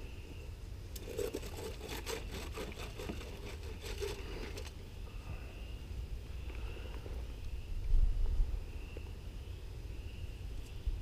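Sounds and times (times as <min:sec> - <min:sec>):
steady low rumble: 0:04.8 - 0:11.0.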